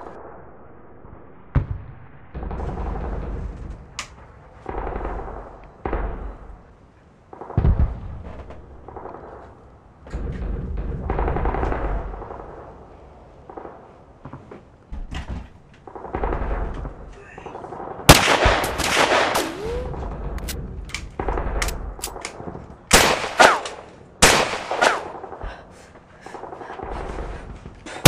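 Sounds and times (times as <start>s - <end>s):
deep rumbling thumps and booms: 1.4s - 6.6s, 7.5s - 9.1s, 10.0s - 12.6s, 19.9s - 22.7s.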